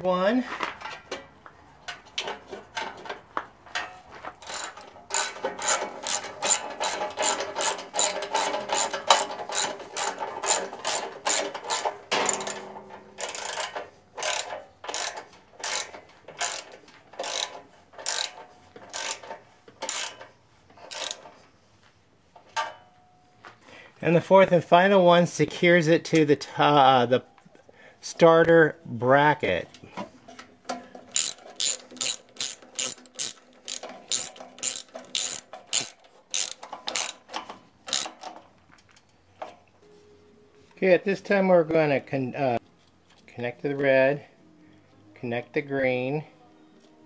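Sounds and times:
ratchet wrench clicking: 4.4 - 12.6, 13.2 - 20.2, 20.8 - 21.2, 31.1 - 37.2, 37.9 - 38.2.

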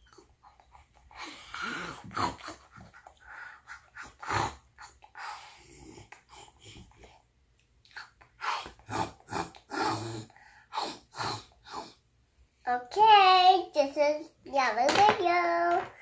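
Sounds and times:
child making munching noises: 0.2 - 3.1.

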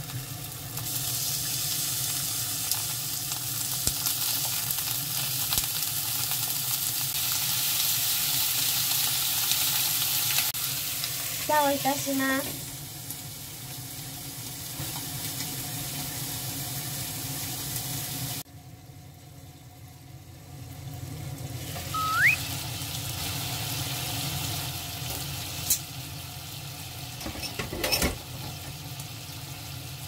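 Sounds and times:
chicken sizzling in oil: 0.0 - 30.0
rising squeak: 21.9 - 22.5.

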